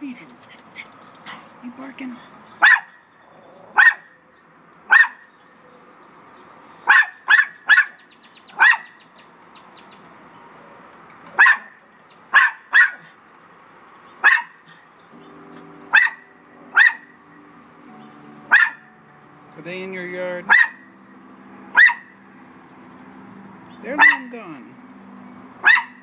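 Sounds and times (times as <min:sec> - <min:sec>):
small dogs barking: 0:02.6 - 0:04.2, 0:04.8 - 0:05.4, 0:06.8 - 0:09.1, 0:11.3 - 0:13.2, 0:14.2 - 0:14.7, 0:15.9 - 0:17.2, 0:18.4 - 0:19.0, 0:20.4 - 0:20.9, 0:21.7 - 0:22.2, 0:23.8 - 0:24.3, 0:25.6 - 0:26.0.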